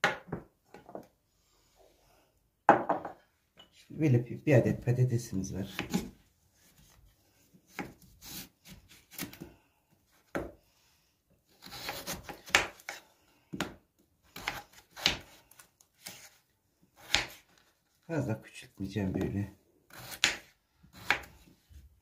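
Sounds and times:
knife slicing and scraping: 0:05.6 - 0:07.0, 0:07.7 - 0:09.4, 0:11.5 - 0:13.0, 0:14.3 - 0:16.4
knife chopping on wooden board: 0:05.7 - 0:06.1, 0:07.7 - 0:08.4, 0:11.6 - 0:13.0, 0:14.4 - 0:15.4, 0:17.0 - 0:17.4, 0:19.9 - 0:21.4.

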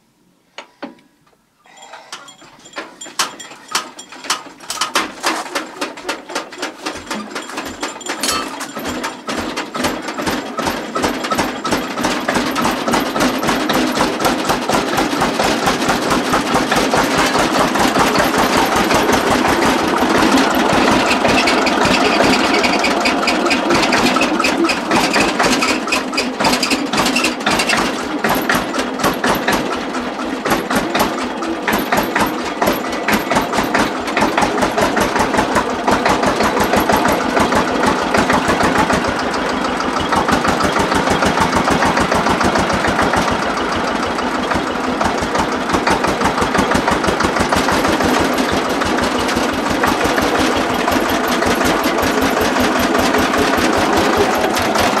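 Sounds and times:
tractor engine starting and idling: 0:01.7 - 0:55.0.

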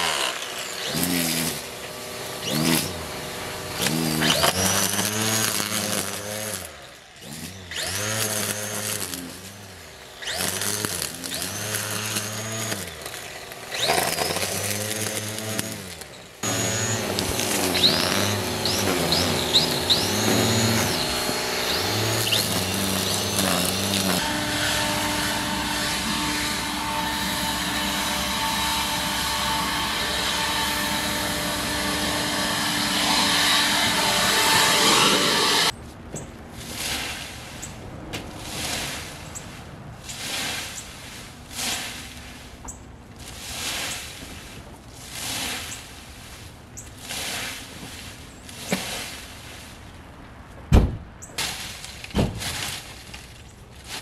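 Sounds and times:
electric string trimmer whining: 0:00.0 - 0:35.8.

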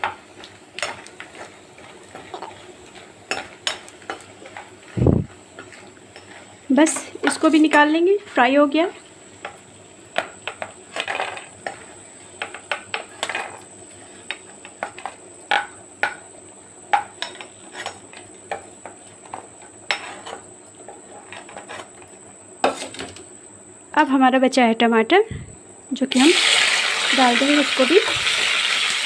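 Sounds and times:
oil sizzling: 0:00.0 - 0:20.0, 0:26.0 - 0:29.0.

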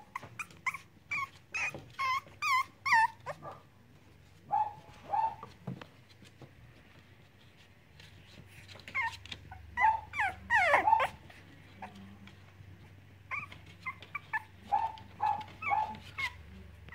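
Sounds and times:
puppies yipping and whining: 0:00.0 - 0:03.4, 0:04.5 - 0:05.6, 0:08.7 - 0:12.0, 0:13.3 - 0:16.5.

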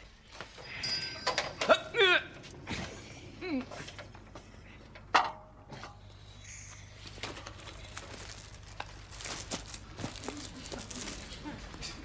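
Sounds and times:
clothing rustling: 0:07.0 - 0:11.5.

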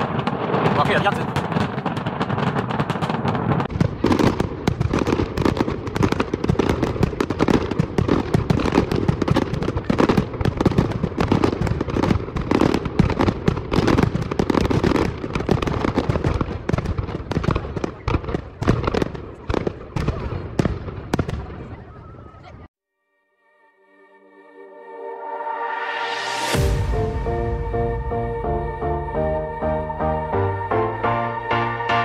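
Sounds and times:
fireworks bursting and crackling: 0:00.0 - 0:22.7, 0:26.3 - 0:28.1.

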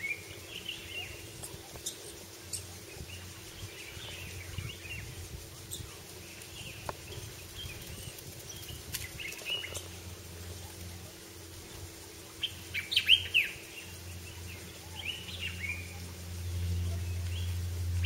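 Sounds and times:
low steady hum: 0:00.0 - 0:18.0
small birds chirping: 0:00.0 - 0:18.0.

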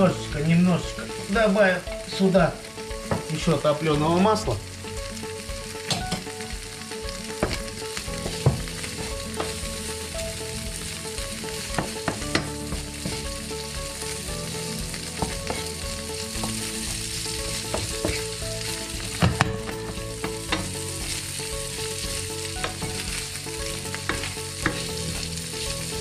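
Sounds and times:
meat sizzling in a pan: 0:00.0 - 0:26.0
wooden spatula scraping a pan: 0:15.0 - 0:26.0.

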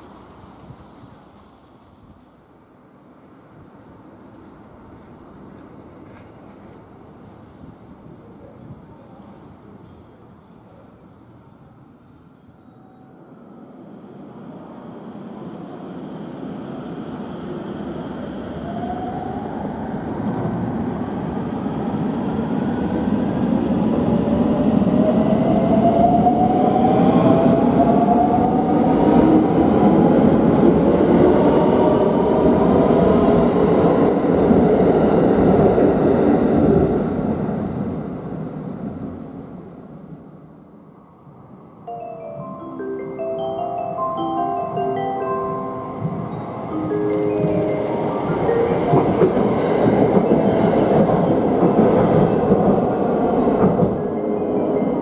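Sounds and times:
train wheels on rails: 0:03.3 - 0:08.2, 0:15.7 - 0:39.6, 0:46.0 - 0:55.0.

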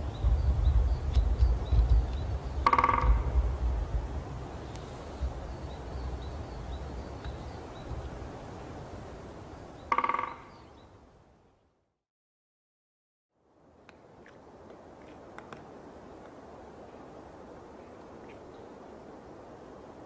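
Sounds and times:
low wind rumble: 0:00.0 - 0:11.8
woodpecker drumming: 0:00.5 - 0:03.6, 0:09.8 - 0:10.8.

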